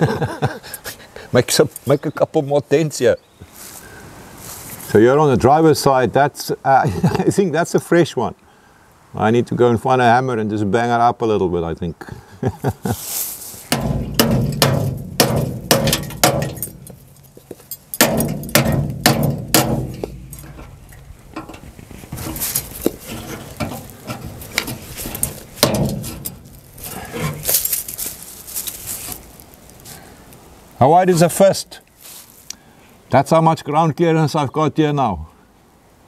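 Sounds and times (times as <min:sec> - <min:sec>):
hammer on sheet metal: 0:13.7 - 0:17.0, 0:18.0 - 0:20.7, 0:25.6 - 0:26.4
metal ringing: 0:13.7 - 0:27.9.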